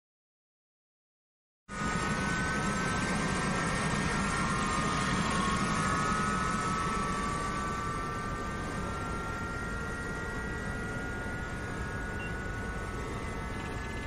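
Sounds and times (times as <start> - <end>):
rushing drone with low hum: 1.7 - 14.0
thin whining tones falling in pitch: 1.7 - 14.0.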